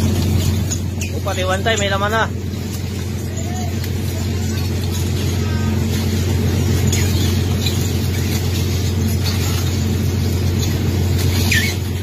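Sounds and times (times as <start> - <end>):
boat machinery drone: 0.0 - 12.0
faint short squeaks: 11.2 - 12.0.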